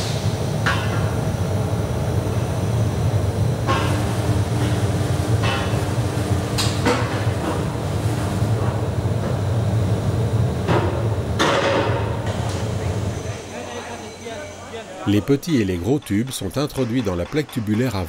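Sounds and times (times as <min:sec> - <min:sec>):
workshop machinery rumbling: 0:00.0 - 0:18.0
steel tubes clanking: 0:15.1 - 0:18.0.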